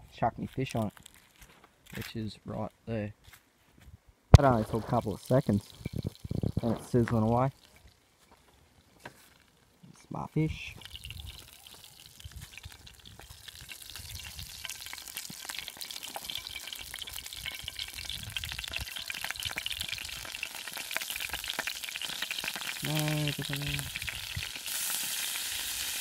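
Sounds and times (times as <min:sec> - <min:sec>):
hot oil sizzling and crackling: 0:04.3 - 0:08.1, 0:10.6 - 0:26.0.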